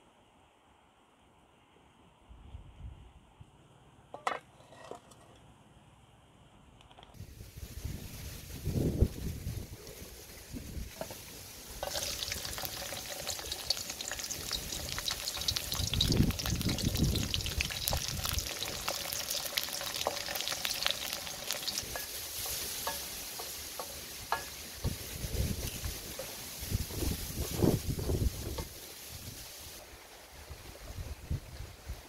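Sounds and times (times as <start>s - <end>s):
food sizzling in hot oil: 7.2s - 29.8s
wooden spoon stirring in wok: 9.9s - 27.5s.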